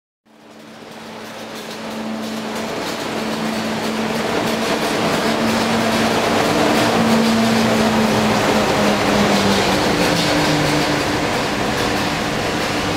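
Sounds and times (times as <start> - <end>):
train passing on rails: 0.3 - 12.9.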